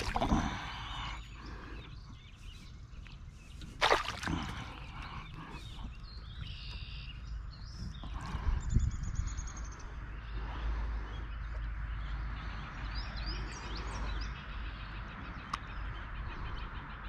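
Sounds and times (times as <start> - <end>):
fish thrashing and splashing: 0.0 - 0.6, 3.7 - 5.0.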